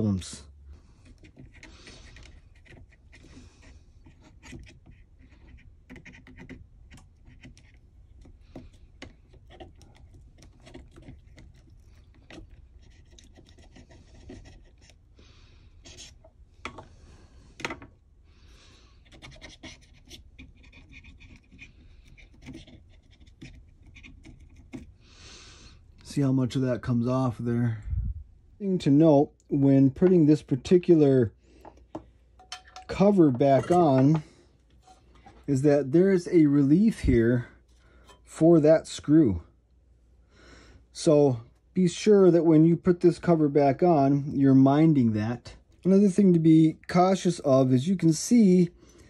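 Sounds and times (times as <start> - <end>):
faint scratching and rubbing: 0.8 - 15.0, 15.7 - 16.3, 18.9 - 25.0.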